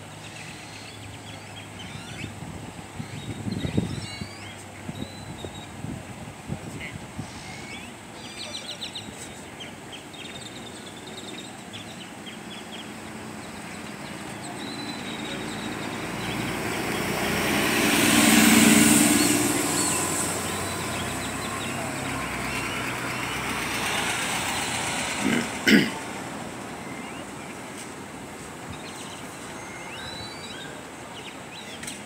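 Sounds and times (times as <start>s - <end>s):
bird chirps: 3.0s - 5.7s, 28.7s - 31.9s
vehicle driving past: 14.6s - 27.0s.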